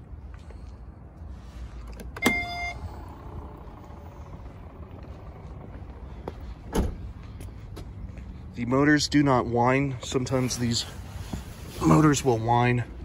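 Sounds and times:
strut motors humming: 0:02.7 - 0:07.9.

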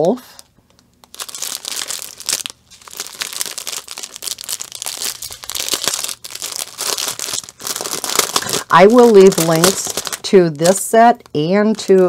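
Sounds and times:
plastic packaging crinkling: 0:00.1 - 0:12.0.

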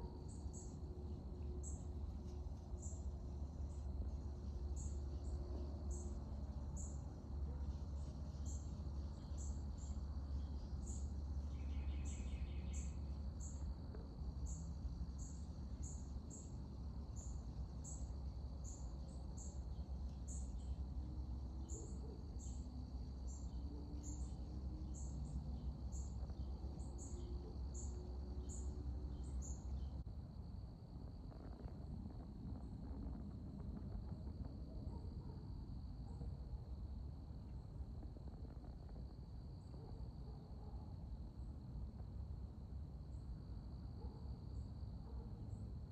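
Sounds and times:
high insect drone: 0:00.0 - 0:45.6
insects chirping: 0:00.0 - 0:45.9
steady low rumble: 0:27.8 - 0:39.8.

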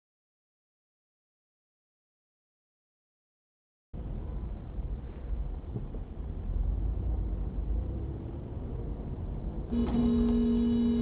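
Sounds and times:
car engine and road noise: 0:04.0 - 0:11.0
car horn blaring: 0:09.7 - 0:11.0.

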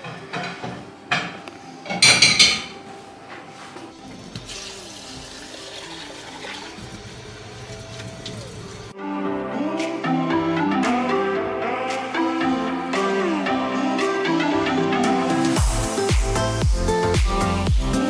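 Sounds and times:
dishes clattering: 0:00.0 - 0:02.9
tap water running into bowl: 0:04.2 - 0:08.6.

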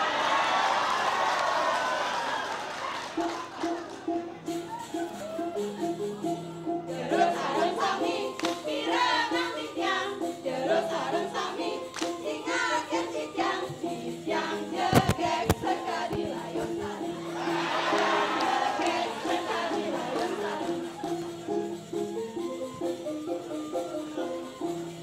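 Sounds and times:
backing music: 0:03.1 - 0:25.0
women singing a cheer song: 0:06.9 - 0:21.0.

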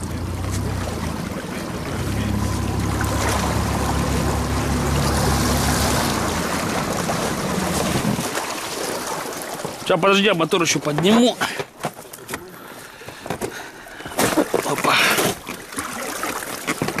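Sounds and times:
outboard motor running: 0:00.0 - 0:10.0.

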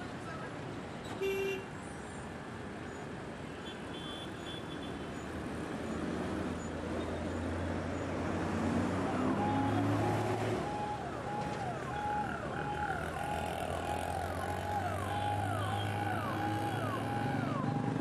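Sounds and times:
passing vehicle engines: 0:05.4 - 0:18.0.

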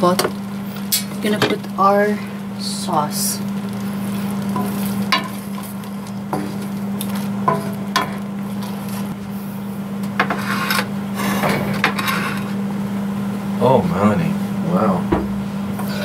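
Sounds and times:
steady low hum: 0:00.0 - 0:16.0
utensils knocking against pan: 0:04.6 - 0:05.4, 0:07.5 - 0:08.2.

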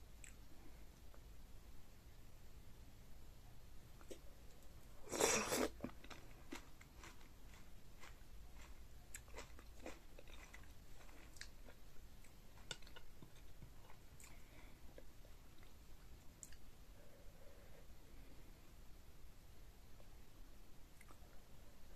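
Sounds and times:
loud food crunch: 0:05.0 - 0:11.8.

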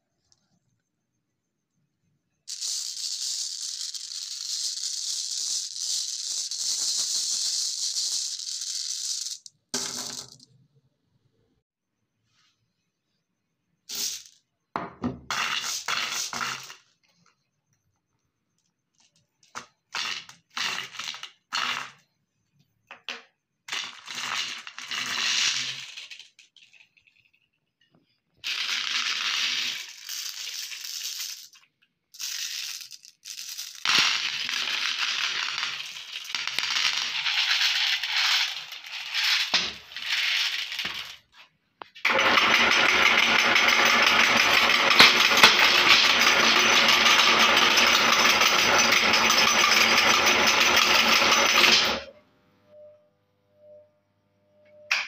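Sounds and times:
glass marbles clattering: 0:02.5 - 0:10.5, 0:23.8 - 0:52.1.

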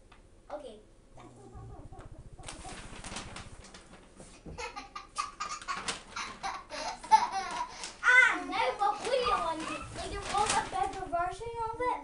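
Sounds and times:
paper bag rustling: 0:02.4 - 0:04.8, 0:05.4 - 0:12.0
child giggling and squealing: 0:09.2 - 0:10.1.

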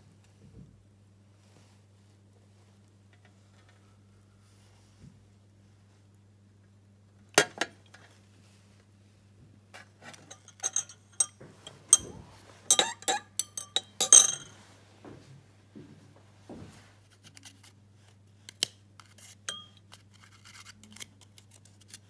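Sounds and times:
metal spatula stirring in glass: 0:10.3 - 0:12.1, 0:12.7 - 0:14.6, 0:19.5 - 0:19.8
glass beaker clinking: 0:10.3 - 0:14.6, 0:19.5 - 0:19.8.

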